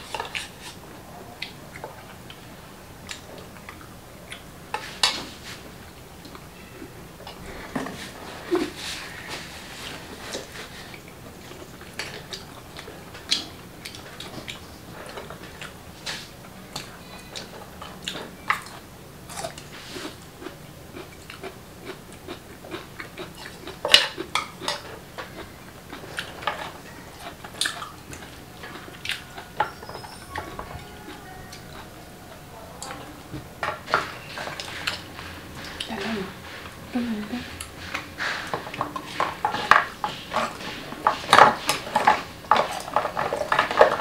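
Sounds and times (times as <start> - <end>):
chewing: 0.0 - 5.6, 7.2 - 36.8.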